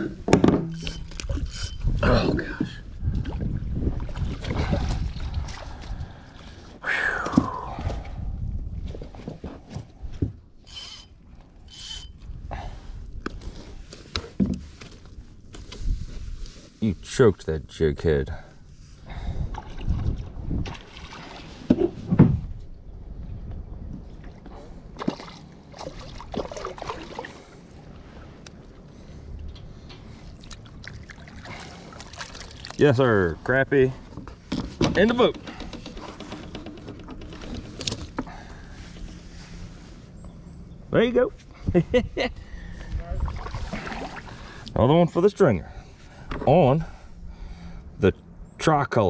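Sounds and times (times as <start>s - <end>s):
fishing reel whirring: 0.7s - 1.8s, 10.7s - 12.2s
water lapping: 24.1s - 29.4s, 30.1s - 33.2s, 42.5s - 44.7s
water splashing beside a kayak: 25.0s - 27.7s, 30.4s - 32.9s.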